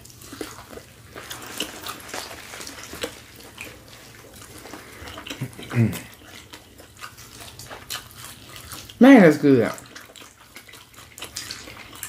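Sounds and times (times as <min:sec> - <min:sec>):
wet chewing and smacking: 0:00.0 - 0:12.0.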